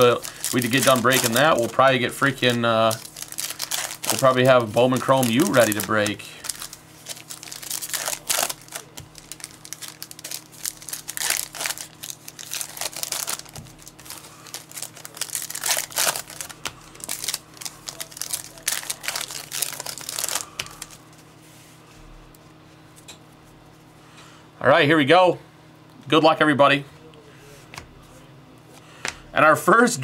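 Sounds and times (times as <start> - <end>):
plastic wrapping crinkling and tearing: 0.0 - 21.3.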